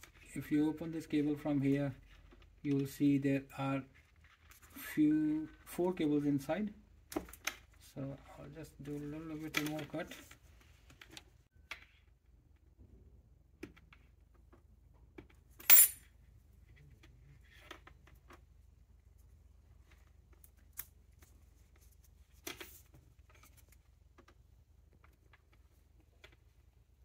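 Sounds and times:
sharp clink: 15.6 - 16.0.

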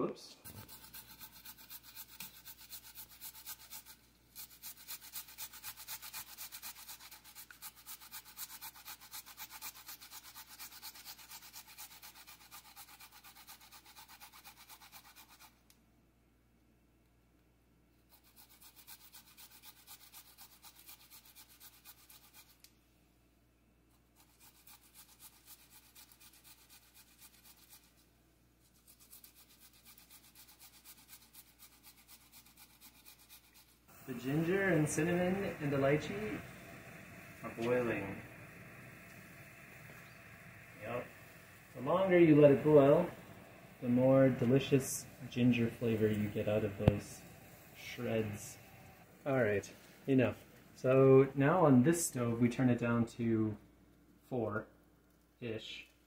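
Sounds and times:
ginger scraping on hand grater: 0.5 - 15.5, 18.1 - 22.6, 24.2 - 27.9, 28.8 - 38.2.

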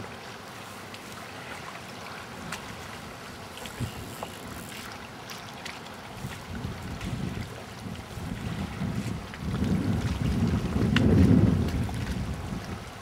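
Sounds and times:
choppy lake water: 0.0 - 13.0
wind hiss: 3.6 - 4.8.

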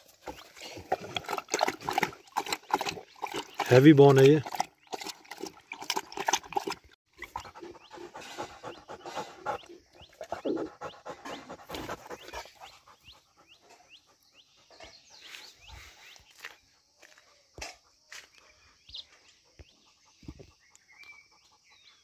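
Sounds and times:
dog lapping water: 0.0 - 12.7
dog panting hard: 7.2 - 16.0.

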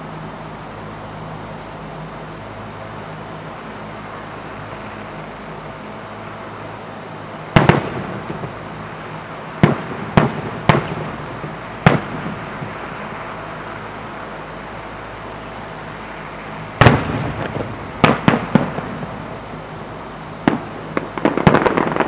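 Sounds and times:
low background hum: 0.0 - 22.0
fireworks bangs: 7.5 - 13.1, 16.8 - 19.6, 20.4 - 22.0.

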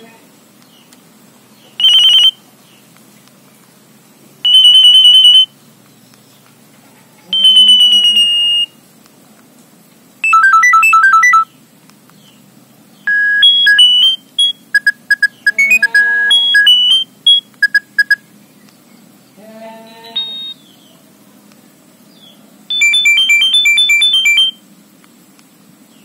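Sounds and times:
mobile phone electronic tones: 1.8 - 2.4, 4.4 - 5.5, 7.3 - 8.8, 10.2 - 11.5, 13.1 - 18.2, 20.2 - 20.6, 22.7 - 24.6
quick beeps: 1.8 - 2.4, 4.5 - 5.5, 7.4 - 8.7, 10.2 - 11.5, 13.1 - 18.2, 20.2 - 20.6, 22.7 - 24.6
stop-start beeping melody: 4.5 - 5.5, 7.4 - 8.7, 10.2 - 11.5, 13.1 - 18.2, 20.2 - 20.6, 22.7 - 24.6.

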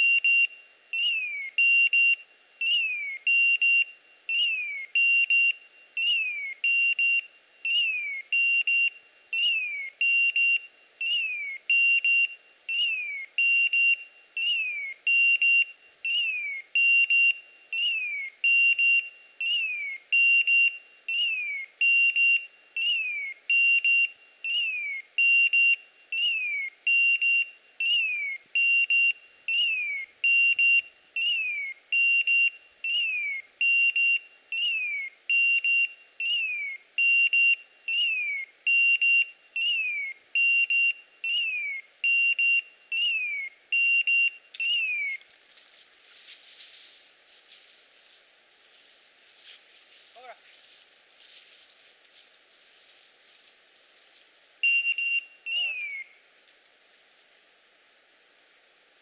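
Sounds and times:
beeper collar beeping and chirping: 0.0 - 45.3, 54.6 - 56.2.

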